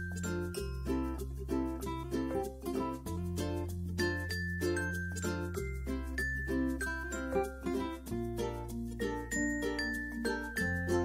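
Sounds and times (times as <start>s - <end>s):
plucked-string tune: 0.0s - 11.0s.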